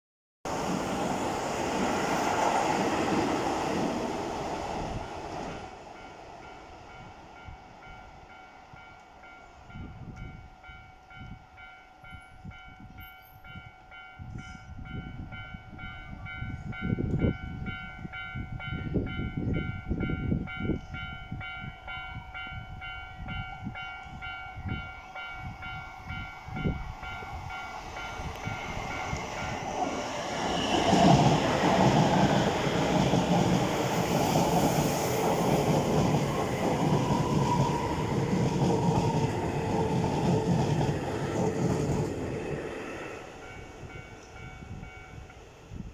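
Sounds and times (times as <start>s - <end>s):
electric train passing: 0.5s - 45.9s
train wheels on rails: 0.5s - 45.9s
level crossing warning bell: 5.9s - 34.5s, 43.0s - 45.5s.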